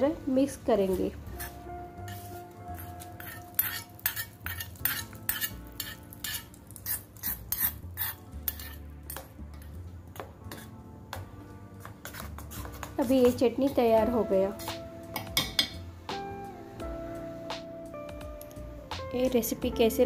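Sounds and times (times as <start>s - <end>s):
spoon scraping a bowl: 1.3s - 9.7s, 10.5s - 10.8s, 11.9s - 12.9s.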